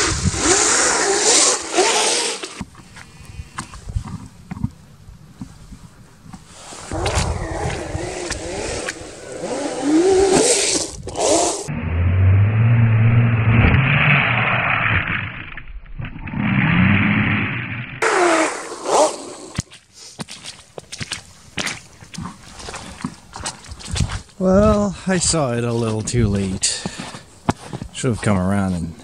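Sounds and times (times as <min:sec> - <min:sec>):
track scraping on ice: 0:00.0 - 0:02.7, 0:06.5 - 0:11.7, 0:18.0 - 0:29.0
snow crunching: 0:06.5 - 0:11.7
electric motor whining: 0:06.9 - 0:11.8.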